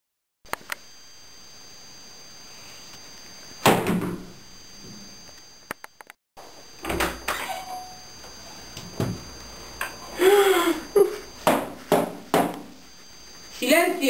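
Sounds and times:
wooden door creaking open: 0:06.8 - 0:07.9
sharp knocks and thuds: 0:11.4 - 0:12.7.

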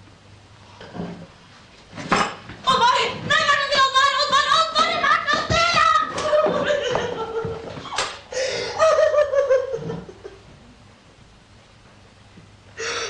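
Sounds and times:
woman wailing and sobbing: 0:04.0 - 0:07.6.

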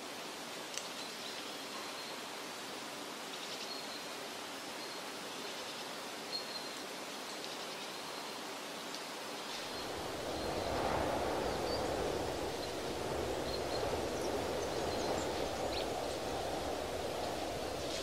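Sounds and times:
steady rushing background: 0:09.6 - 0:18.0.

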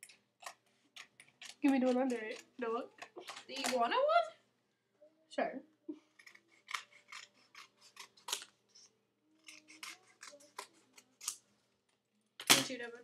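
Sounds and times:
scissors snipping: 0:06.2 - 0:11.4.

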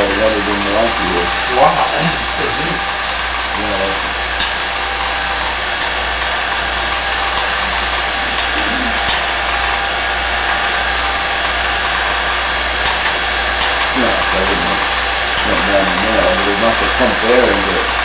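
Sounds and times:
faint voice: 0:00.0 - 0:02.8, 0:03.6 - 0:04.1, 0:07.6 - 0:09.1, 0:14.0 - 0:17.9
constant hiss: 0:00.0 - 0:18.0
steady low hum: 0:00.0 - 0:18.0.

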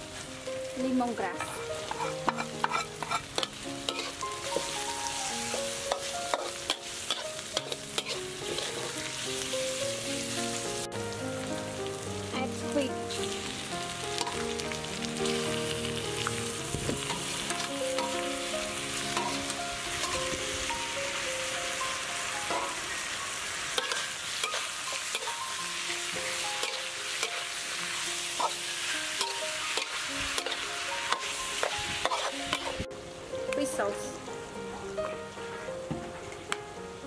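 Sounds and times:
food sizzling in oil in a wok: 0:00.0 - 0:35.2
metal spatula scraping a wok: 0:01.4 - 0:04.7, 0:05.9 - 0:09.1, 0:19.1 - 0:20.3, 0:23.7 - 0:25.6, 0:26.6 - 0:27.6, 0:28.3 - 0:32.8.

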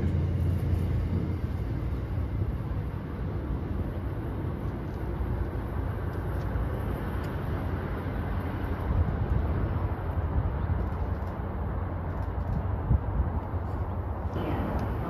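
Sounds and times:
low rumble of vehicle noise: 0:00.0 - 0:15.0.

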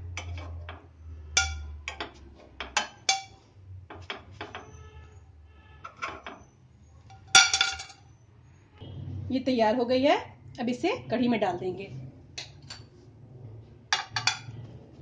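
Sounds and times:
metal spoon clinking on pan and plate: 0:00.0 - 0:04.7, 0:07.1 - 0:08.0, 0:14.0 - 0:14.6.

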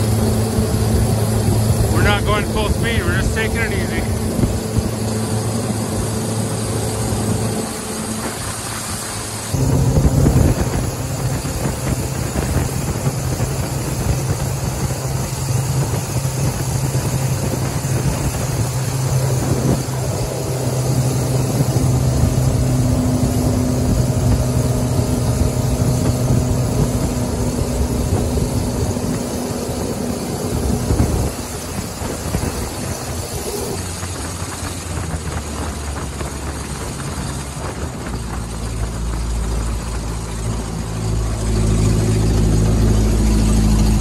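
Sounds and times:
jet boat engine running: 0:00.0 - 0:44.0
water noise: 0:00.0 - 0:44.0
wind noise: 0:00.0 - 0:44.0.

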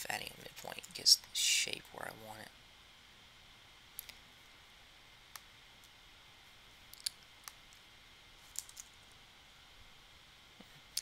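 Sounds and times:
faint steady hiss: 0:00.0 - 0:11.0
computer mouse clicking: 0:08.5 - 0:09.0.

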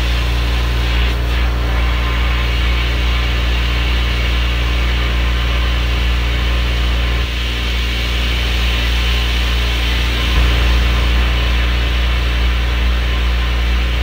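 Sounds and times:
sandblaster hissing: 0:00.0 - 0:14.0
strong low hum: 0:00.0 - 0:14.0.

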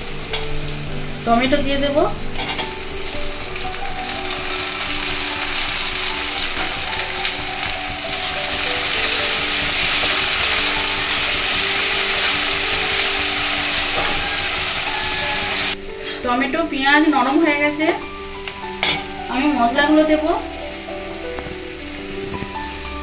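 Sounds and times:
vegetables sizzling in oil: 0:00.0 - 0:23.0
metal spatula scraping pan: 0:02.2 - 0:02.9, 0:10.4 - 0:16.2, 0:18.8 - 0:19.1.

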